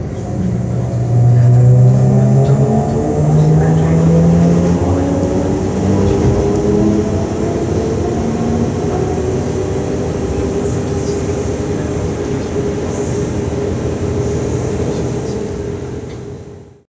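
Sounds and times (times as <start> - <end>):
train wheels rumbling on rails: 0.0 - 16.8
train running hum: 0.0 - 16.9.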